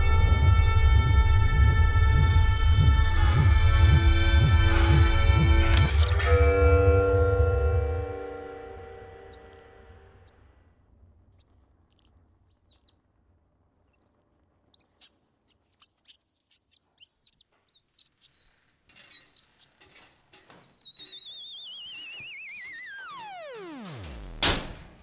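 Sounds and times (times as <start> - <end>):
bird chirping and trilling: 5.9 - 6.2, 9.3 - 9.6, 11.9 - 13.0, 13.9 - 23.8
high wavering whistle: 9.3 - 9.8, 14.8 - 23.9.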